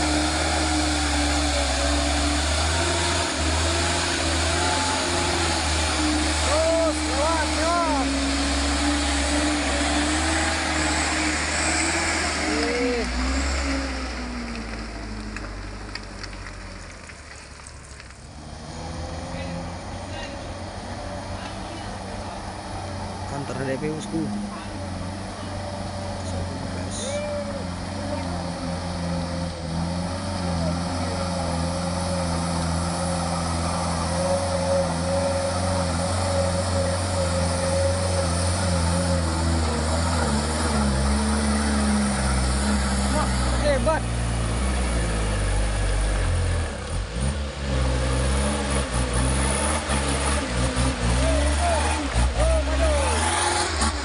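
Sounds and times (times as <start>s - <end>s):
diesel truck engine rumbling: 0.0s - 54.0s
small clicks and crackle: 14.5s - 18.2s.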